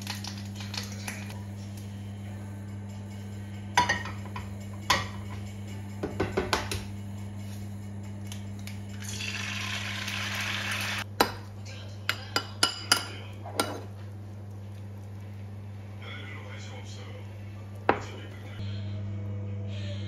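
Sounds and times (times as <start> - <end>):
egg sizzling in a pan: 9.0 - 11.1.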